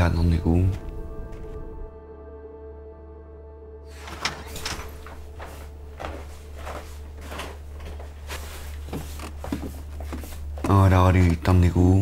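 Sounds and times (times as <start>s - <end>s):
footsteps and wooden creaks: 3.9s - 12.0s.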